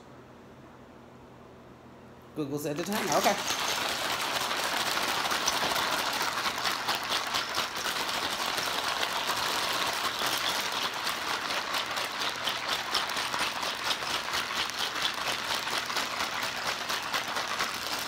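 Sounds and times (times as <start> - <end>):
bag of ice shaken muffled rattling: 2.8 - 18.0.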